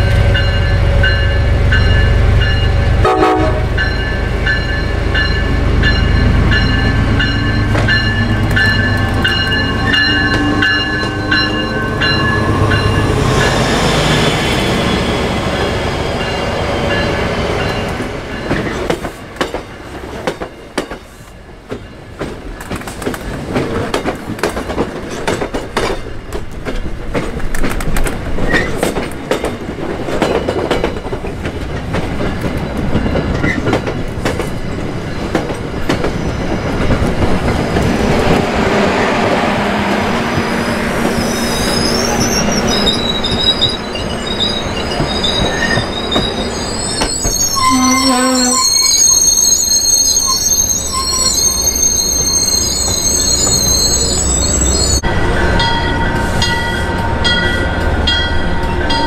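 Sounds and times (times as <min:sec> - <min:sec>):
train bell ringing: 0:00.0 - 0:18.8, 0:32.2 - 0:35.6, 0:41.7 - 0:59.0
diesel locomotive engine rumbling: 0:00.0 - 0:59.0
train wheels clicking over rail joints: 0:17.0 - 0:38.5.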